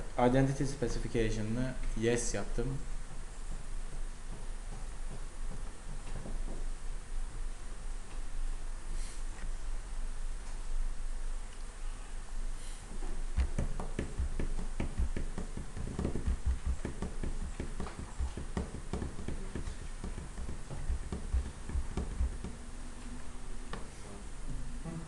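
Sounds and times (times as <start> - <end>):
dull low thumps: 12.9 - 25.0
small taps and clicks: 13.4 - 22.6.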